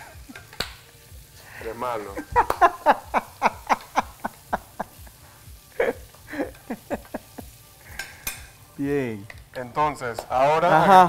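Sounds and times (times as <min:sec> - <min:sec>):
man laughing: 0:02.0 - 0:07.6.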